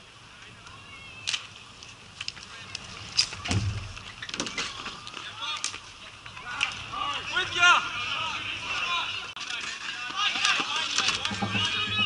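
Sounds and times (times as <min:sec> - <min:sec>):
players shouting: 0:04.5 - 0:12.0
hockey sticks clacking: 0:09.4 - 0:12.0.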